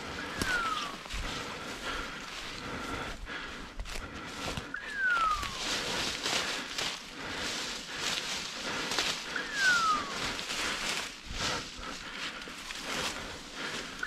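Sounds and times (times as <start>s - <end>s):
footsteps through dry leaves: 0.0s - 14.0s
short falling whistle tone: 4.7s - 5.7s, 9.4s - 10.2s.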